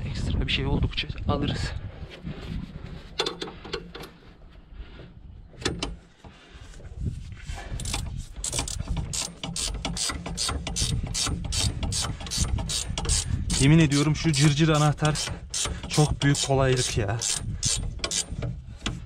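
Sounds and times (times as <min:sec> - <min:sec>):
ratchet wrench clicking: 0:07.8 - 0:19.0.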